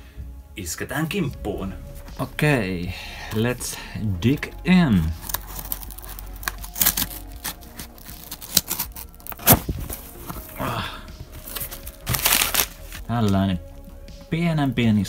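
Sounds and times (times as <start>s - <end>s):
cardboard rustling: 5.1s - 13.4s
knife slitting packing tape: 5.2s - 9.7s, 11.4s - 13.0s
cardboard flaps scraped open: 5.2s - 10.6s, 11.4s - 13.0s.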